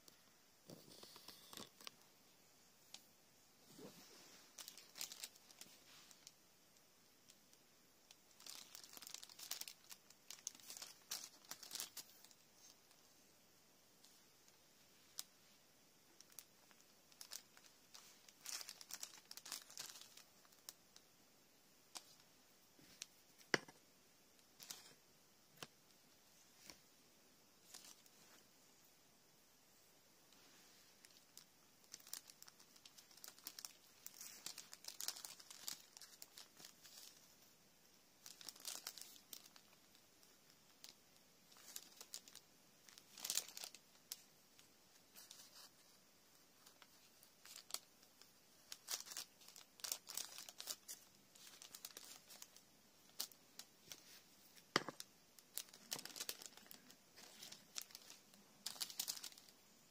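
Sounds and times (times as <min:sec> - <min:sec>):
paper crinkling and rustling: 0:03.6 - 0:06.3, 0:08.4 - 0:12.8, 0:16.2 - 0:20.7, 0:30.3 - 0:37.3, 0:38.2 - 0:46.0, 0:46.6 - 0:47.9, 0:48.6 - 0:59.5.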